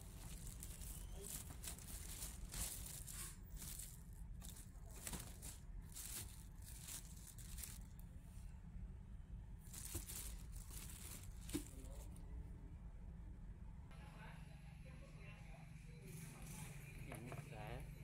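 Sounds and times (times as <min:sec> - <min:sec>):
plastic bag crinkling: 0:00.0 - 0:08.0, 0:09.6 - 0:12.2
low background hum: 0:00.0 - 0:18.0.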